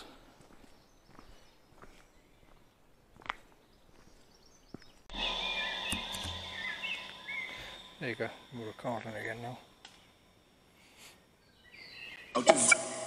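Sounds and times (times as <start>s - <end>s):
warbling electronic chirps: 5.1s - 9.8s
high electronic whine: 5.1s - 10.6s
low electronic hum: 5.1s - 11.6s.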